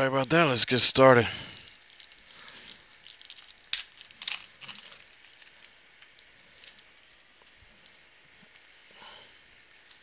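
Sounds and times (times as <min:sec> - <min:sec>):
foil wrapper crinkling and tearing: 0:00.0 - 0:07.2.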